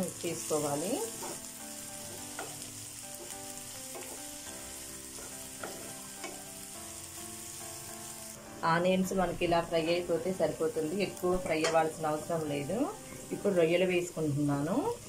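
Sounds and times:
onions sizzling in oil: 0:00.0 - 0:15.0
spatula scraping and tapping pan: 0:01.1 - 0:04.4, 0:05.1 - 0:06.5.

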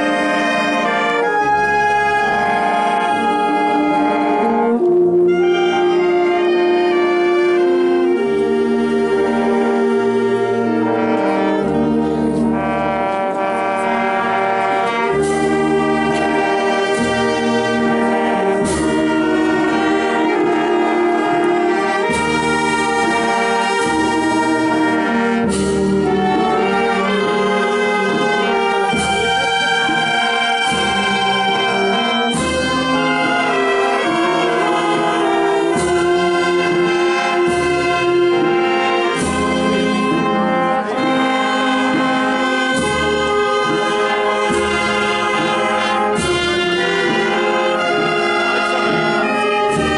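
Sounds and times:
wind band playing slow march: 0:00.0 - 0:49.9.

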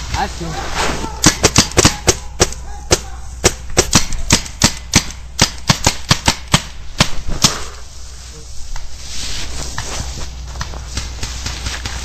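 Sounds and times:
paintball marker shots popping: 0:01.2 - 0:07.6.

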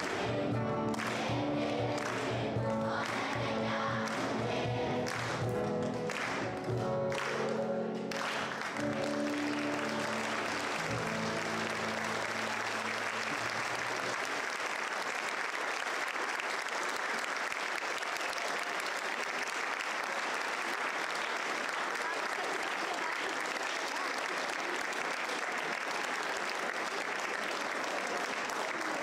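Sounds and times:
audience applauding: 0:00.0 - 0:29.0
music sustained notes: 0:05.6 - 0:14.1.

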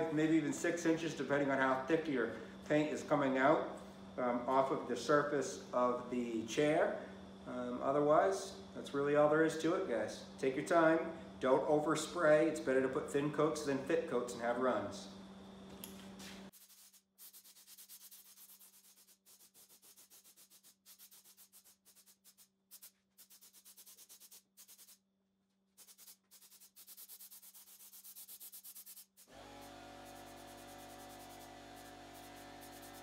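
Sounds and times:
pulsing hiss of spray gun: 0:29.3 - 0:33.0.

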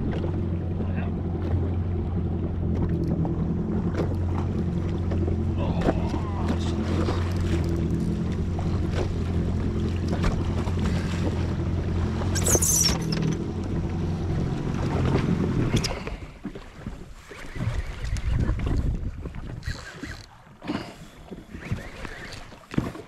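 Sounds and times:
jet ski engine idling: 0:00.0 - 0:16.4
brief high squeal: 0:12.3 - 0:13.2.

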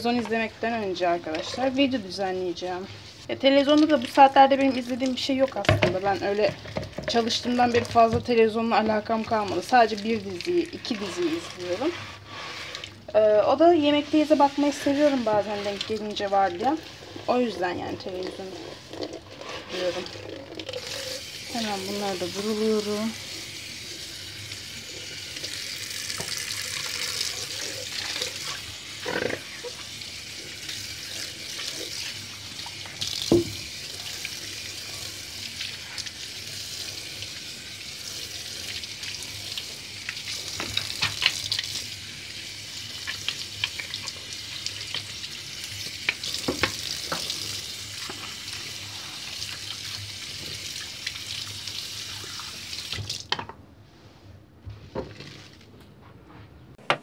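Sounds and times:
tap running into sink: 0:05.5 - 0:08.4, 0:26.1 - 0:26.5, 0:32.7 - 0:33.7, 0:46.0 - 0:47.4.

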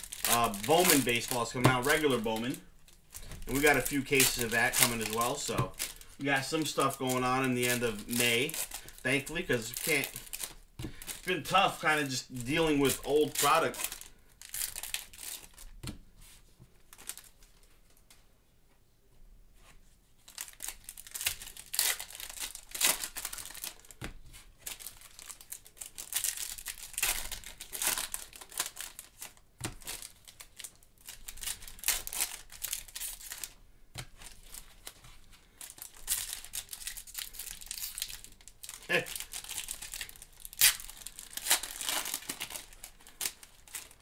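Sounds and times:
foil wrappers tearing and crinkling: 0:00.0 - 0:15.7, 0:20.3 - 0:24.0, 0:24.6 - 0:44.0.

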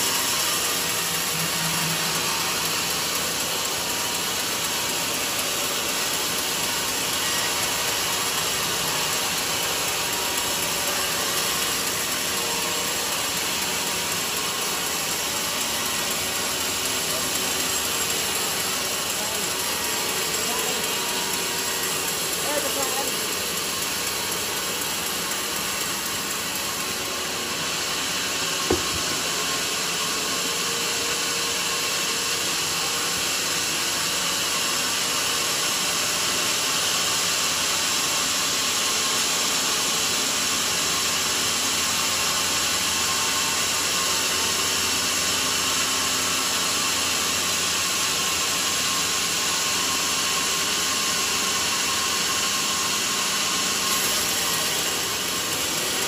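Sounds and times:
band saw cutting log: 0:00.0 - 0:35.1, 0:39.5 - 0:56.0
sharp knock: 0:28.7 - 0:29.5.

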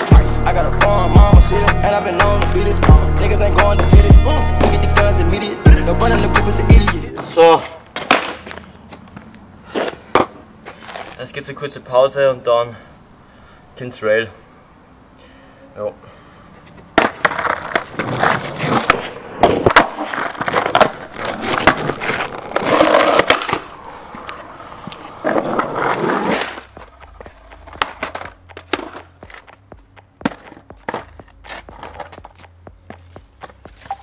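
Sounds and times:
skateboard wheels rolling on asphalt: 0:00.0 - 0:04.0, 0:07.1 - 0:12.3, 0:16.5 - 0:34.0
skateboard clacks and impacts: 0:07.9 - 0:08.7, 0:16.9 - 0:32.6.

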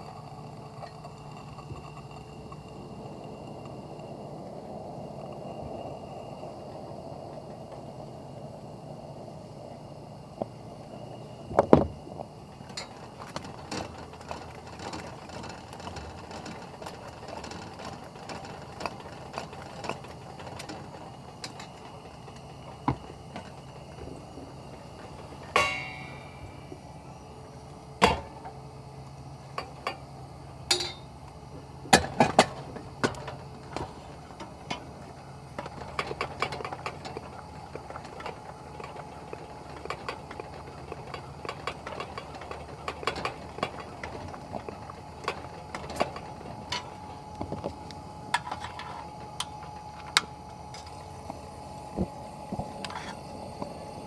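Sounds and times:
ringing metallic clink: 0:25.5 - 0:26.6, 0:30.7 - 0:31.1
metal and glass clicks and knocks: 0:30.7 - 0:31.1.

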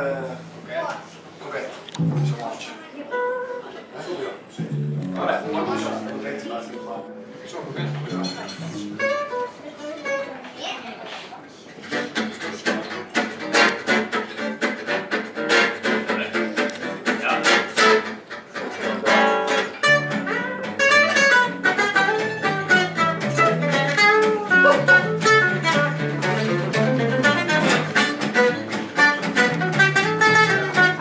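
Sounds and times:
rhythm guitar strumming: 0:01.9 - 0:03.7, 0:04.4 - 0:10.4, 0:11.8 - 0:31.0
walking bass line: 0:02.0 - 0:02.4, 0:04.6 - 0:06.2, 0:07.8 - 0:09.2, 0:19.8 - 0:31.0
lead guitar runs: 0:19.8 - 0:31.0.

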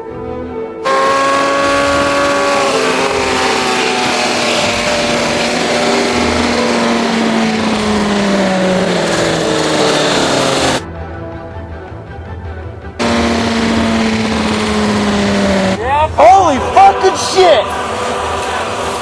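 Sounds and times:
motorcycle engine running: 0:00.9 - 0:10.8, 0:13.0 - 0:15.8.

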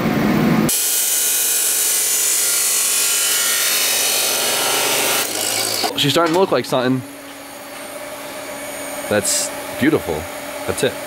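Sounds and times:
grinder wheel on steel: 0:04.0 - 0:06.5.

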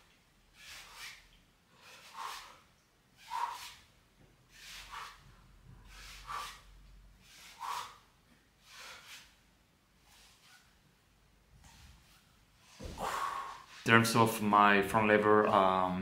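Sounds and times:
man breathing hard: 0:04.5 - 0:09.4, 0:12.8 - 0:13.8.

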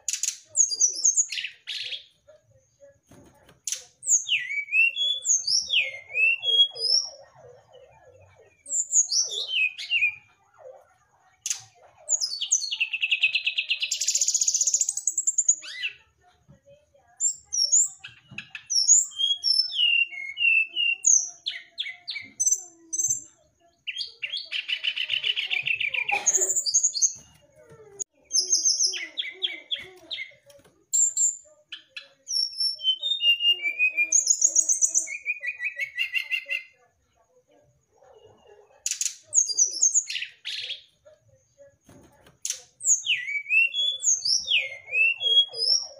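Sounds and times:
bird whistled song: 0:03.7 - 0:07.2, 0:08.6 - 0:10.3, 0:17.2 - 0:23.3, 0:31.0 - 0:36.7, 0:42.4 - 0:45.9.

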